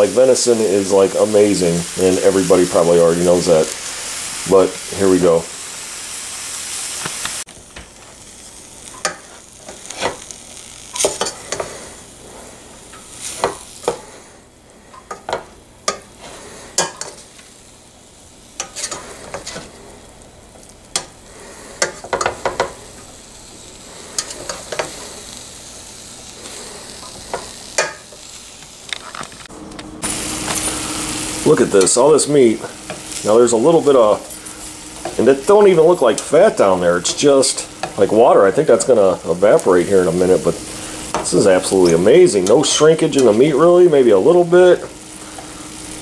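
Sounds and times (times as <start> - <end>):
meat sizzling in a skillet: 0.0 - 46.0
spatula scraping a pan: 8.8 - 17.4, 18.5 - 23.0, 23.8 - 25.4, 26.3 - 28.4.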